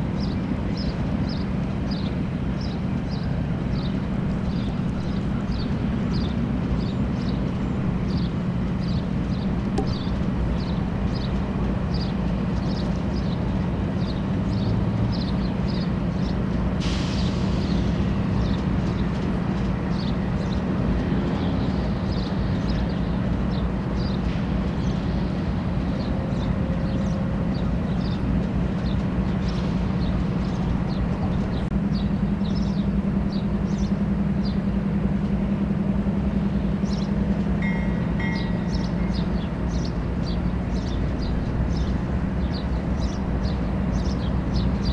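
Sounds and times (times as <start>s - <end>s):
diesel locomotive engines droning: 0.0s - 44.9s.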